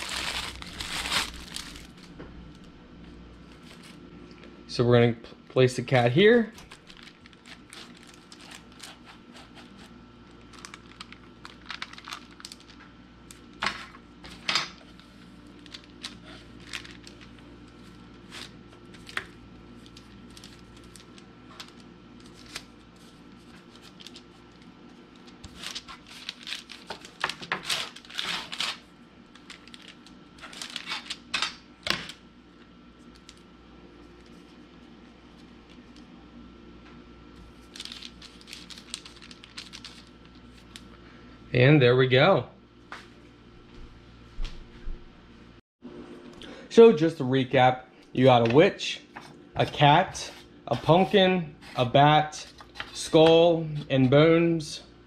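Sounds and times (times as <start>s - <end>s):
faint steady hum: 0.0s - 55.0s
hands working cookie dough: 6.5s - 32.2s, 48.2s - 54.4s.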